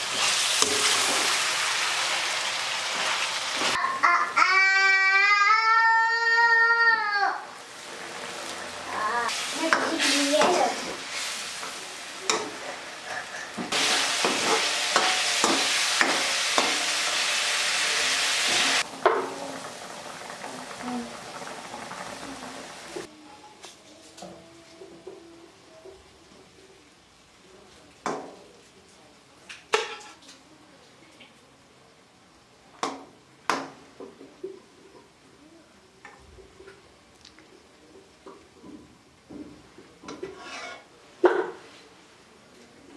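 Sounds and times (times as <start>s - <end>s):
meat sizzling in a wok: 0.0s - 3.8s, 6.0s - 23.1s
metal ladle scraping a pan: 40.1s - 41.0s.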